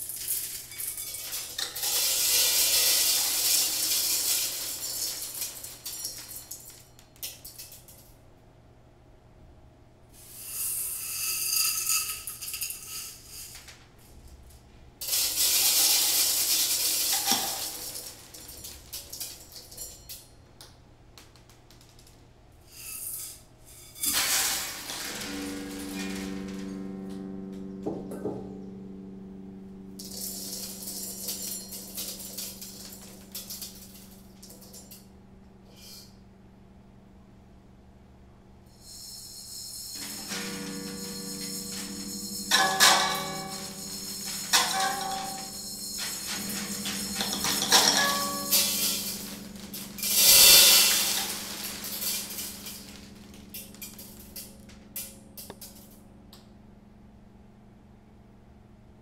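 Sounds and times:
dry seeds rattling onto a table: 0:15.0 - 0:20.2, 0:30.0 - 0:35.0, 0:40.0 - 0:56.0
steady low drone: 0:25.2 - 0:35.4
metal bowl ringing: 0:39.5 - 0:54.3.

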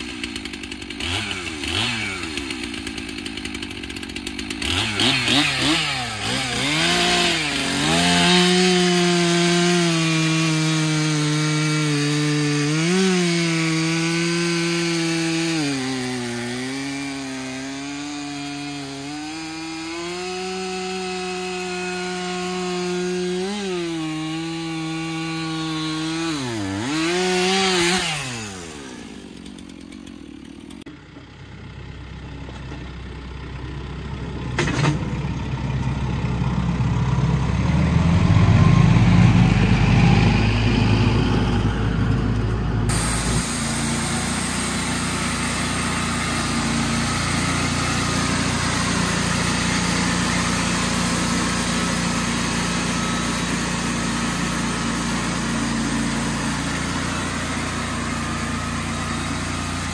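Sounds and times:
chainsaw cutting through log: 0:00.0 - 0:30.9, 0:37.4 - 0:41.7, 0:42.9 - 0:59.9
chainsaw revving: 0:00.0 - 0:30.9, 0:42.9 - 0:59.9.

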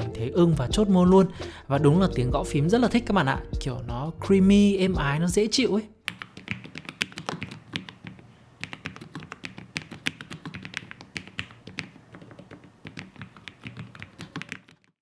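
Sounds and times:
soft keyboard typing clicks: 0:06.1 - 0:14.9.

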